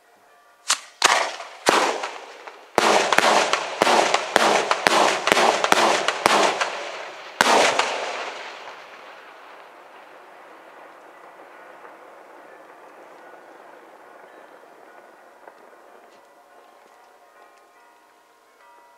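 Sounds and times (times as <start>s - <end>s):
fireworks bangs with echo: 0.6s - 17.1s.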